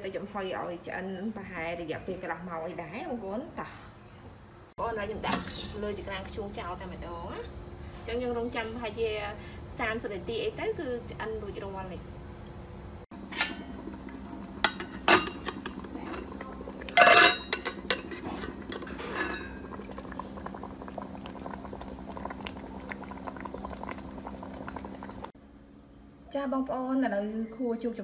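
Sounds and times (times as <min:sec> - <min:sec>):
water simmering in pot: 0:13.2 - 0:25.4
metal tongs clanking on pot lid: 0:13.3 - 0:13.8, 0:14.6 - 0:19.5.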